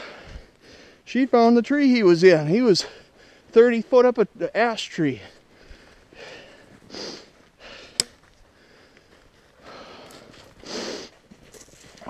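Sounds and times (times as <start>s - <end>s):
person breathing close to microphone: 0.0s - 1.0s, 5.2s - 11.2s.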